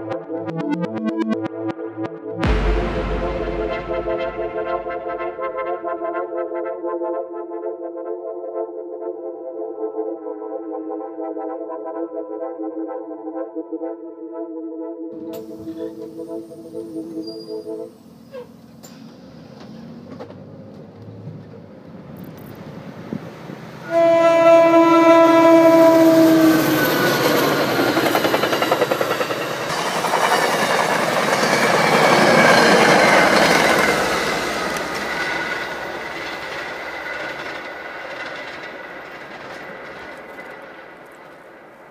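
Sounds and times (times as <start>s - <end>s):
train wheels rumbling on rails: 18.8s - 24.0s, 25.3s - 41.9s
train horn blast: 23.8s - 27.5s.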